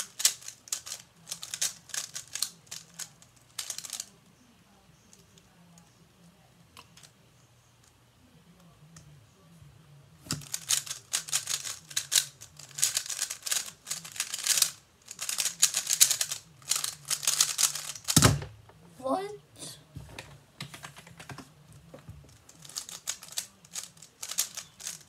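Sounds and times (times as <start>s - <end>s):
puzzle cube plastic clicks rattling: 0.0s - 4.2s, 10.3s - 18.2s, 22.4s - 25.0s.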